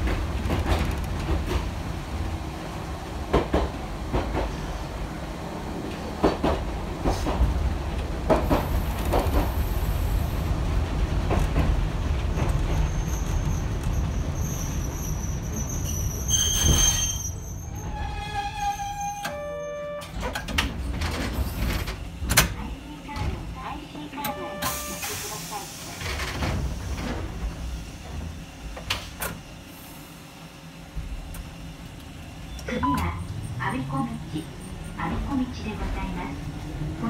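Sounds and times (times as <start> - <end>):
streetcar rumble: 0.0 - 37.0
wheel squeals: 12.7 - 19.8.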